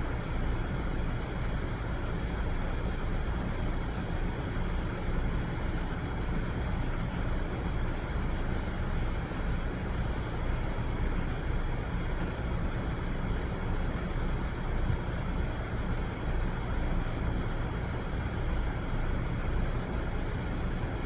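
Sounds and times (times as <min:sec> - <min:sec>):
low background rumble: 0:00.0 - 0:21.0
charcoal scratching on paper: 0:00.8 - 0:11.0
fingertips rubbing paper: 0:01.2 - 0:10.8.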